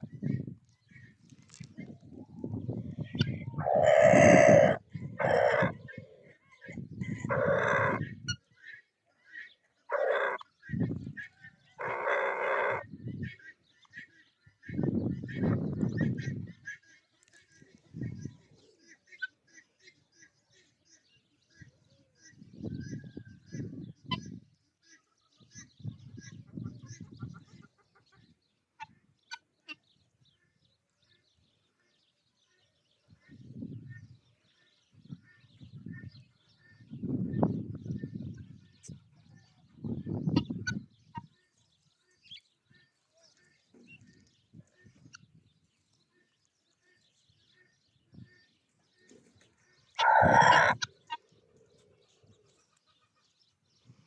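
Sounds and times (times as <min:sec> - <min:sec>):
poultry chirps and calls: 0:00.0 - 0:54.0
fowl harsh calls: 0:03.2 - 0:06.2, 0:07.0 - 0:08.4, 0:09.9 - 0:10.4, 0:11.7 - 0:12.9, 0:49.9 - 0:51.2.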